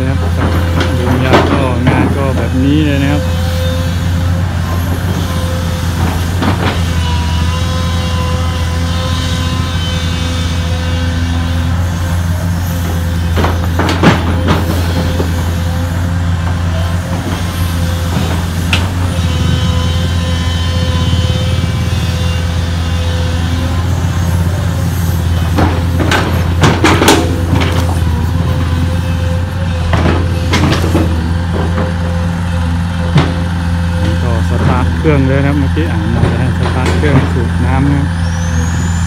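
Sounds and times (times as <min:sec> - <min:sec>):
excavator bucket clanks: 0:00.0 - 0:02.6, 0:12.9 - 0:20.2, 0:25.2 - 0:37.6
excavator diesel engine running: 0:00.0 - 0:39.0.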